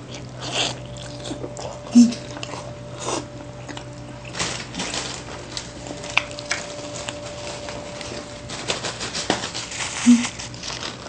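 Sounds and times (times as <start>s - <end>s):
chewing and mouth sounds: 0.0s - 7.3s
faint steady hum: 0.0s - 11.0s.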